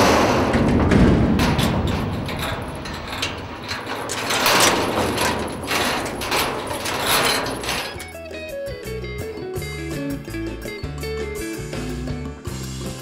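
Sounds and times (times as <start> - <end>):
metal chain clinking on door: 1.4 - 8.8.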